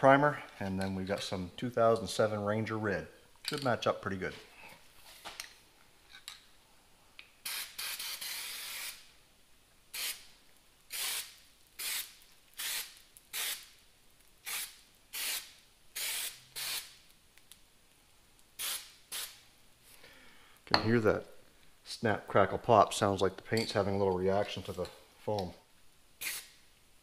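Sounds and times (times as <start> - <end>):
aerosol can spraying: 7.4 - 9.0, 9.9 - 10.2, 10.9 - 13.7, 14.4 - 17.0, 18.6 - 19.4, 26.2 - 26.6.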